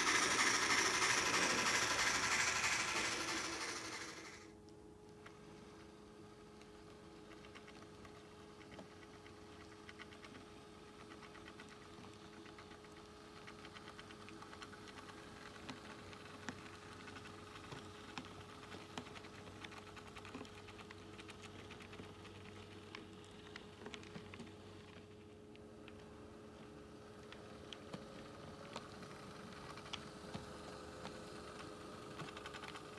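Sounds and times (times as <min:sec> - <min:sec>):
model train wheels clicking: 0:00.0 - 0:04.5, 0:27.9 - 0:32.9.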